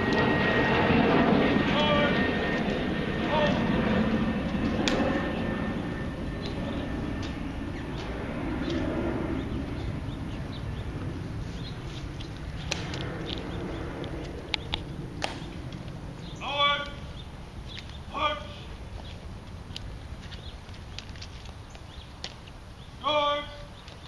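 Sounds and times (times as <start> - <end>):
sharp clicks: 12.2 - 16.0.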